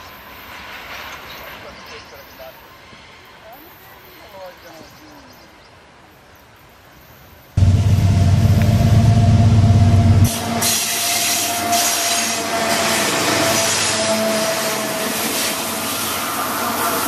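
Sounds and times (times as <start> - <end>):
locomotive engine rumble: 7.6 - 10.8.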